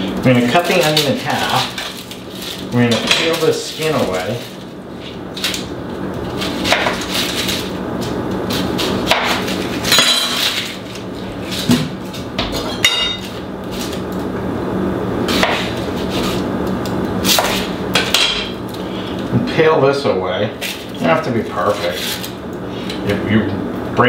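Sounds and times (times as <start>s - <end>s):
onion skin rustling: 0.3s - 12.4s.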